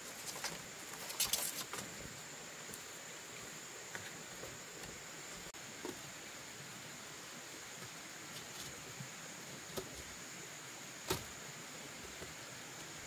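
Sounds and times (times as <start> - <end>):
steady high hiss: 0.0 - 13.0
bamboo strips rustling and knocking: 7.8 - 10.2, 11.0 - 11.4.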